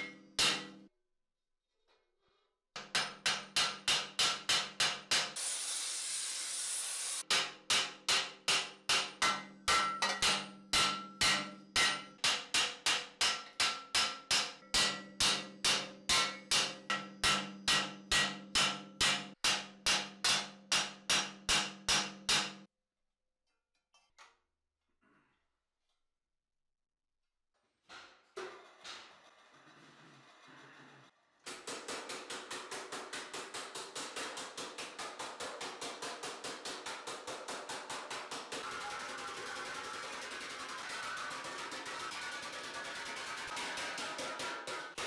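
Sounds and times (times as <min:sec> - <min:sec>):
hammer ringing on metal: 0:07.3 - 0:22.7.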